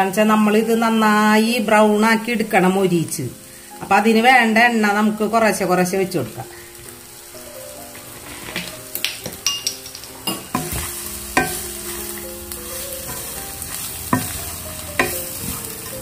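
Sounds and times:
meat sizzling in a pan: 0.0s - 16.0s
spatula knocking against pan: 10.3s - 11.7s, 14.1s - 14.4s, 15.0s - 15.6s
spatula scraping a pan: 10.4s - 16.0s.

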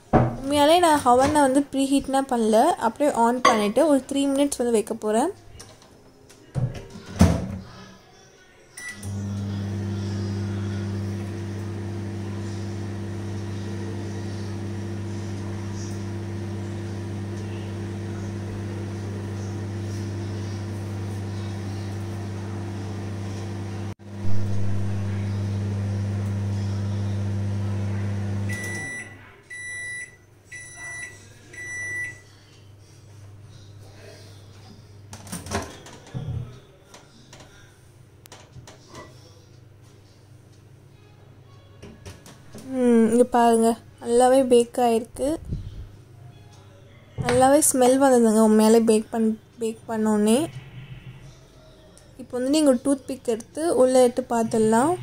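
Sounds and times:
microwave beeps: 8.8s - 23.7s, 26.1s - 32.2s
microwave oven humming: 8.8s - 32.4s.

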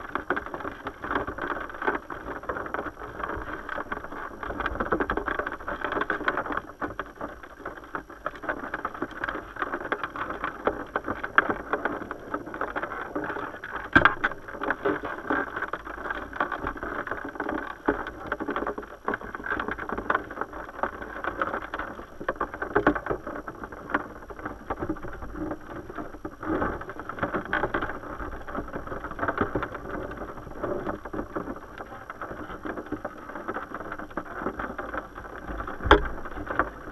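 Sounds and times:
muffled river water underwater: 0.0s - 36.9s
small clicks and taps: 34.4s - 36.8s.

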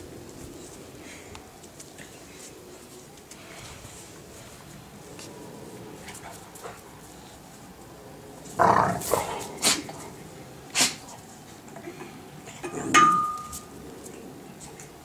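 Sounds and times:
dog growling bark: 8.6s - 10.0s.

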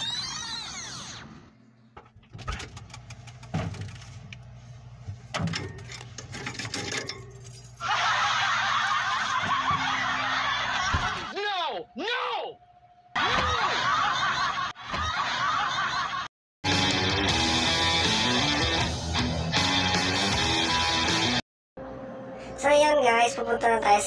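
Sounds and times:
refrigerator hum: 0.0s - 14.5s.

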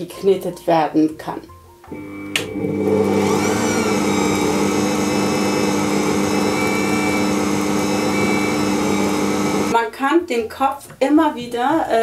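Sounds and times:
stand mixer motor humming: 1.9s - 9.8s.

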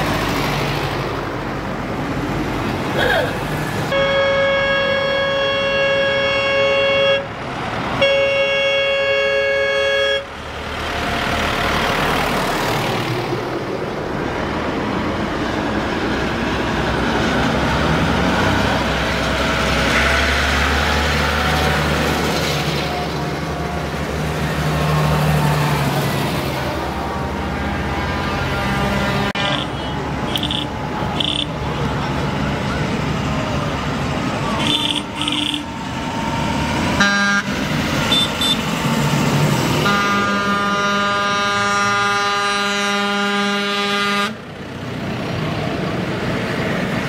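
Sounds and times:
heavy vehicle engines running: 0.0s - 47.0s
outdoor noise: 0.0s - 47.0s
vehicle horn blasts: 3.9s - 7.3s, 8.0s - 10.3s, 29.0s - 31.5s, 34.6s - 35.7s, 37.0s - 37.5s, 38.1s - 38.7s, 39.8s - 44.4s.

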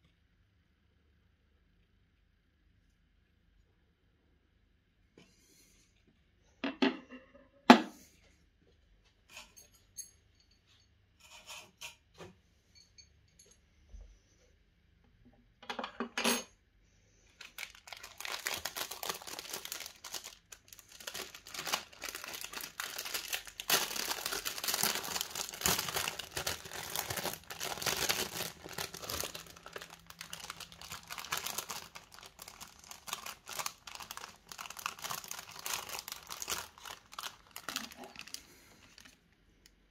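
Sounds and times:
plastic bag crinkling: 17.3s - 39.3s.

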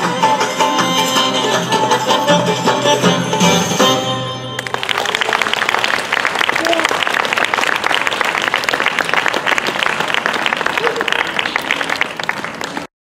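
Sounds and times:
audience applauding: 4.6s - 12.9s.

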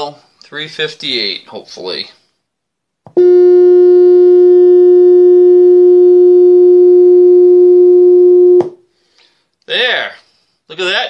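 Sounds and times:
steady test tone from speaker: 3.2s - 8.7s.

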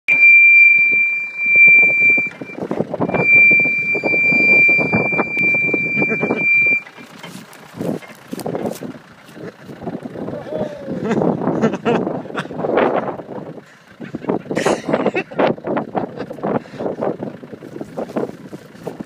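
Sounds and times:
high-pitched squeal: 0.1s - 7.2s
tyres crunching gravel: 1.8s - 10.4s, 17.6s - 19.0s
footsteps on gravel: 6.9s - 9.8s.

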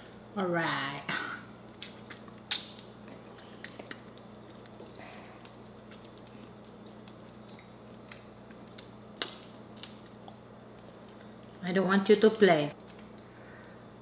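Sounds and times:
steady low hum: 0.0s - 14.0s
chewing: 1.6s - 11.8s, 12.7s - 13.4s
shells being peeled: 1.8s - 11.6s.

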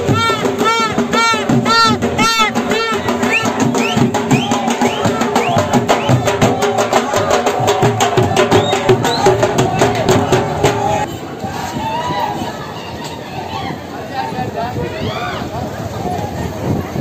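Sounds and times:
marching drums: 0.0s - 11.1s.

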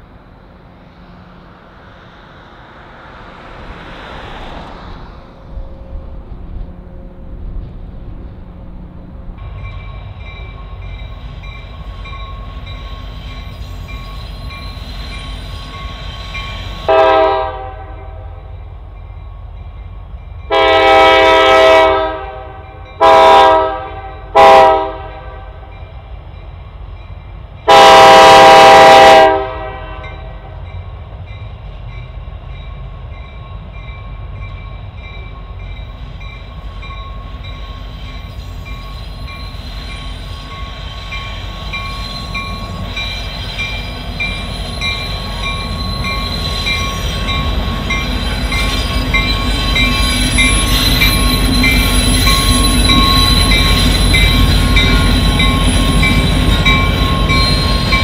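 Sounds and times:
freight train rumble: 0.0s - 58.0s
locomotive air horn blasts: 16.9s - 18.4s, 20.5s - 25.7s, 27.7s - 30.6s
bell ringing: 41.8s - 58.0s.

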